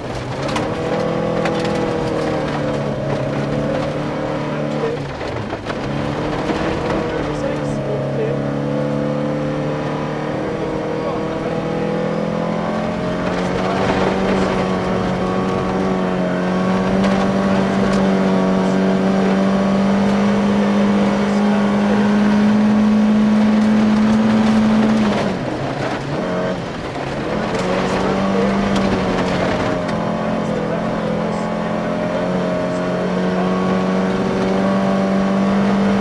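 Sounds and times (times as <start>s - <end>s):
gravel hitting car: 0.0s - 8.0s, 12.5s - 19.2s, 23.3s - 31.4s
car engine pulling hard: 0.0s - 36.0s.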